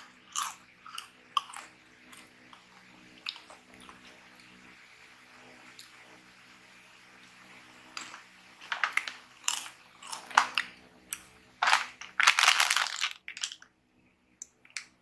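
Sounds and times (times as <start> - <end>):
chips rustling: 7.9 - 13.7
plastic snack bag crinkling: 7.9 - 13.7.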